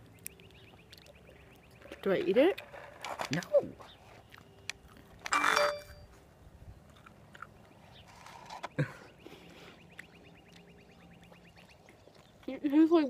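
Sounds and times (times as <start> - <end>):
person chewing: 0.1 - 1.8, 4.2 - 5.3, 6.8 - 12.5.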